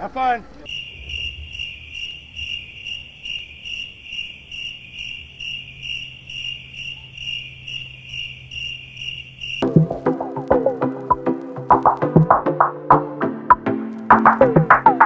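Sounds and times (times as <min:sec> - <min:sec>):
cricket chirping: 0:00.2 - 0:11.9.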